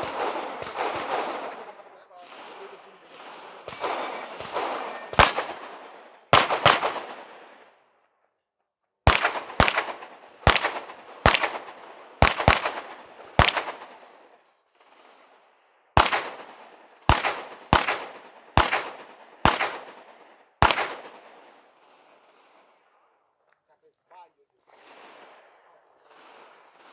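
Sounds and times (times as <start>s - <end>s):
pistol shots with echo: 0.0s - 7.8s, 9.0s - 14.3s, 16.0s - 22.8s.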